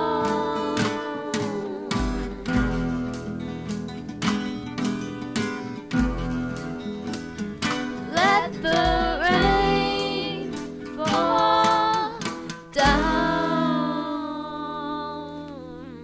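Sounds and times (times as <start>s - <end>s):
woman singing: 0.0s - 3.0s, 8.0s - 16.0s
acoustic guitar: 0.0s - 16.0s.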